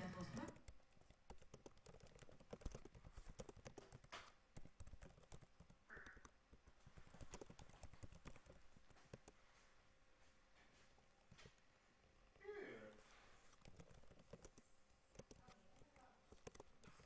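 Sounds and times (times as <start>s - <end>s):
keyboard typing: 0.0s - 9.4s, 13.4s - 17.0s.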